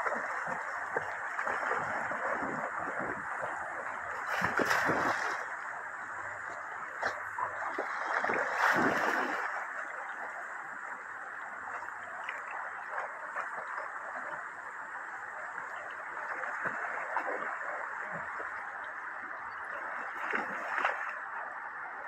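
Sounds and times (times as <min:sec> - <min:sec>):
dog splashing in water: 0:00.0 - 0:03.2, 0:04.3 - 0:05.4, 0:07.0 - 0:09.6
river running over stones: 0:00.0 - 0:22.0.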